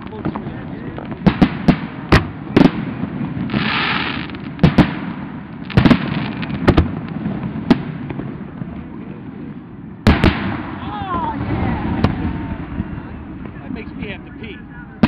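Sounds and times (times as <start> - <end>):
firework hissing rush: 3.4 - 6.6.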